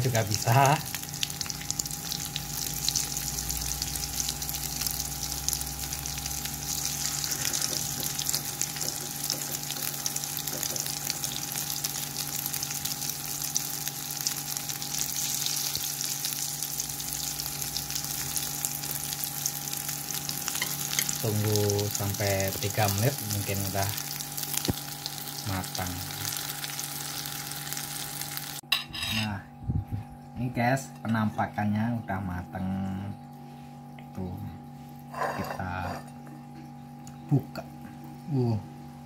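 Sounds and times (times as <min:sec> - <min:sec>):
oil sizzling in a wok: 0:00.0 - 0:28.6.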